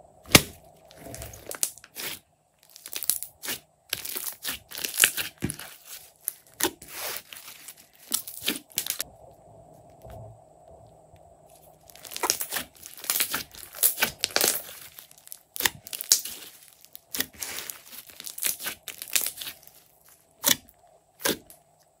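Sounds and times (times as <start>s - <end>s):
slime crackling and tearing: 0.3s - 9.0s, 11.8s - 21.5s
slime popping: 11.9s - 19.8s.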